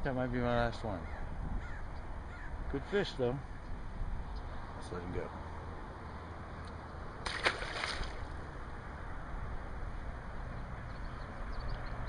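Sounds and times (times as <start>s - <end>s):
wind rumble on microphone: 0.2s - 2.8s
fish splashing into water: 7.2s - 8.4s.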